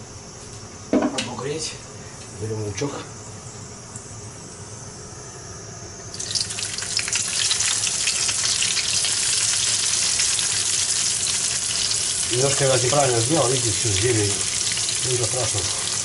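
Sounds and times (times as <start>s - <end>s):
onion sizzling in hot oil: 6.1s - 16.0s
faint hiss from hot pot: 6.2s - 16.0s.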